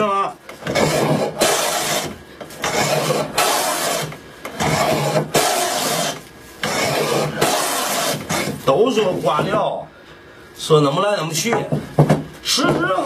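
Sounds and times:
hand plane shaving wood: 0:00.6 - 0:08.6.

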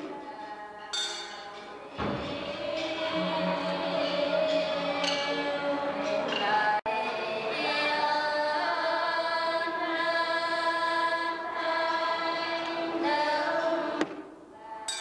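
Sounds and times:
women's choir singing a hymn: 0:00.0 - 0:15.0.

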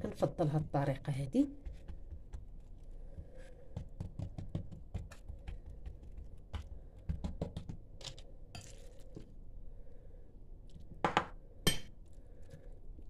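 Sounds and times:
fingertips tapping dough: 0:01.5 - 0:08.1.

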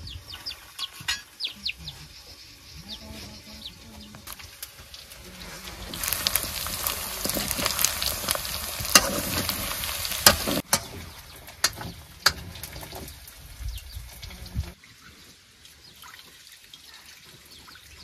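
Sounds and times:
food frying in hot oil: 0:04.2 - 0:14.8
stirring scrapes and knocks: 0:05.2 - 0:13.2.

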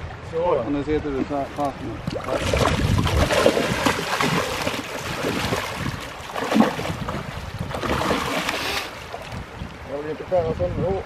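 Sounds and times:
water splashing around a landing net: 0:01.2 - 0:09.8.

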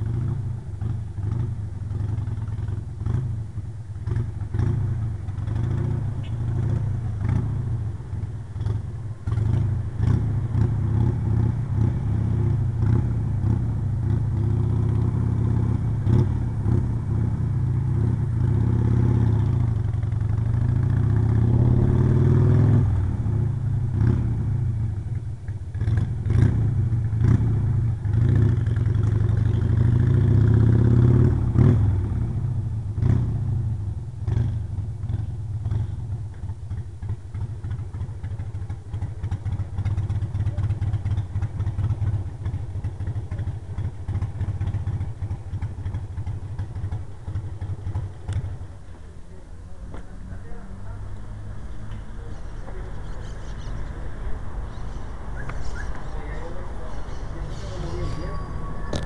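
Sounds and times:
motorcycle engine accelerating and idling: 0:00.0 - 0:59.0.

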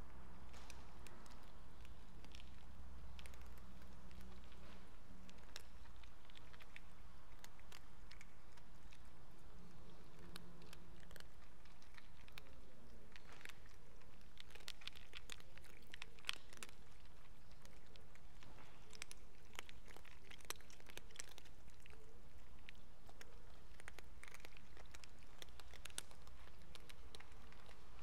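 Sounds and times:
cats crunching food: 0:00.0 - 0:28.0.

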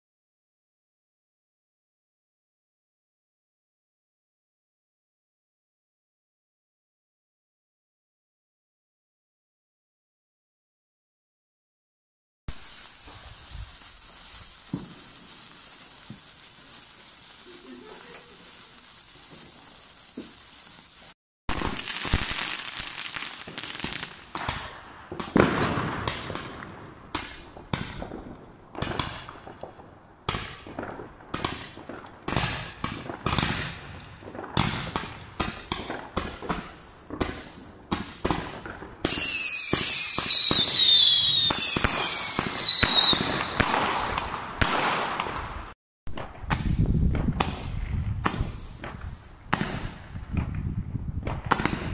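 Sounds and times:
sparkler fizzing: 0:12.5 - 0:24.7, 0:34.6 - 0:43.7
fireworks whistling: 0:12.5 - 0:29.7, 0:30.3 - 0:50.4
fireworks banging and crackling: 0:12.5 - 0:51.9.

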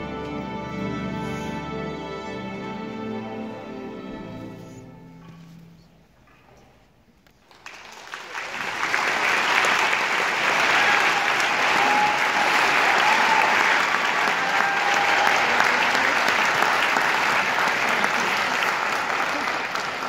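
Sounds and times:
audience applauding: 0:07.4 - 0:20.0.

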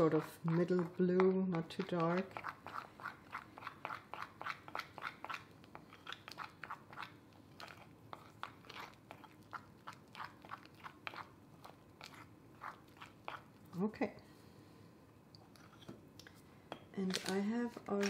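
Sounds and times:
spoon stirring icing in glass bowl: 0:00.0 - 0:13.8.

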